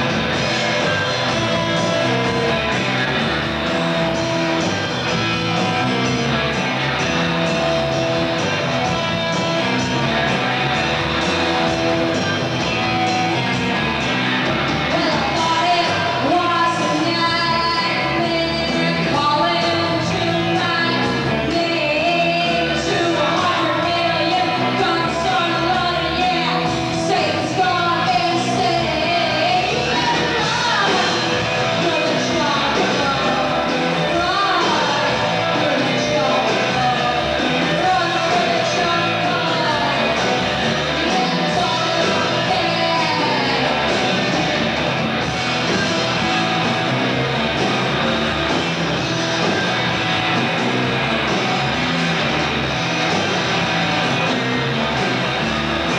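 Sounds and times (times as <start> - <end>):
drums: 0.0 - 55.9
electric guitar: 0.0 - 55.9
woman singing and shouting: 14.9 - 40.2, 41.0 - 44.0.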